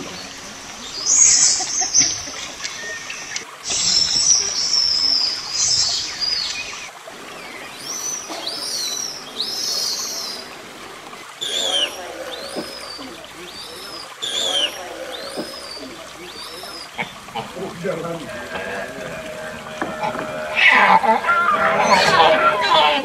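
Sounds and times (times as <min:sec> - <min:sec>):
shrill rasping animal calls: 0:01.0 - 0:23.0
short arched whistles: 0:11.4 - 0:17.0.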